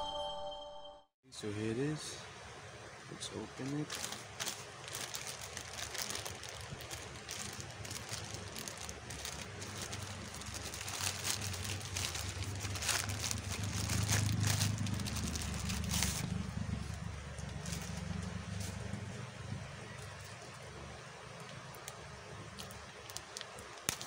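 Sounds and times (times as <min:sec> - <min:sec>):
plastic bag rustling and crinkling: 0:03.6 - 0:24.0
plastic crackles: 0:03.6 - 0:24.0
low rumble: 0:05.9 - 0:20.4.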